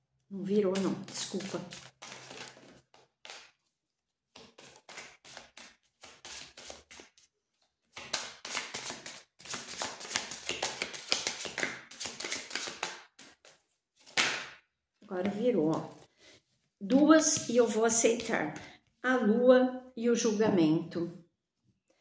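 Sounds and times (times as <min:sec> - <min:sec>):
cards being shuffled: 0:00.8 - 0:14.5.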